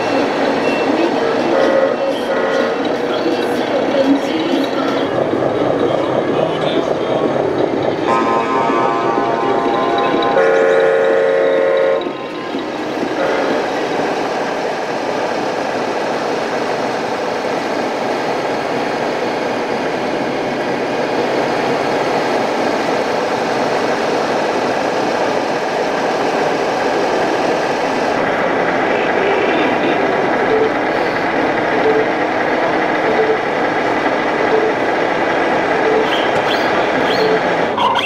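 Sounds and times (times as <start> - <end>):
multi-tone air horn blast: 8.1 - 9.8.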